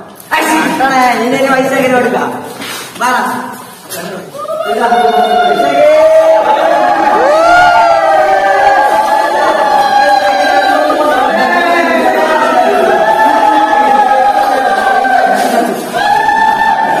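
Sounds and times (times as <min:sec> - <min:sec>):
voices singing in chorus: 0:04.7 - 0:17.0.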